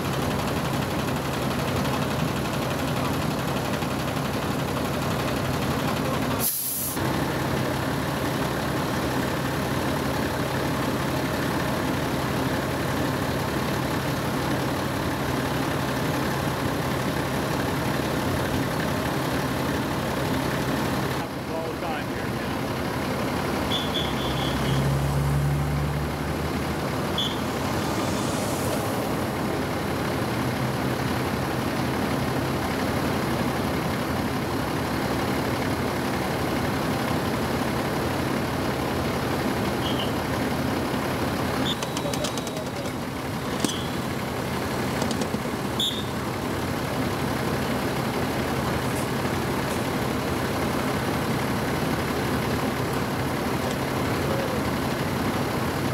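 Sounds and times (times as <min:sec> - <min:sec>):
large vehicle engine idling: 0:00.0 - 0:55.9
short high chirps: 0:27.1 - 0:27.6.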